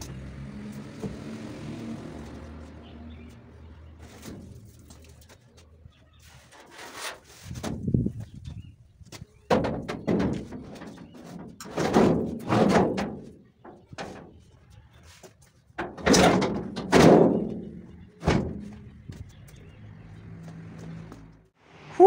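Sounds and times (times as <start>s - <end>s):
metal hood banging and scraping: 6.4s - 8.2s, 9.4s - 14.5s, 15.8s - 19.1s.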